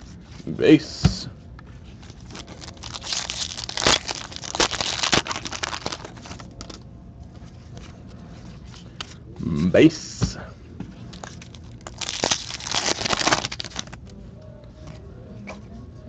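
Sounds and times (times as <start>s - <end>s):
foil pack tearing and crinkling: 2.0s - 6.8s, 11.2s - 14.0s.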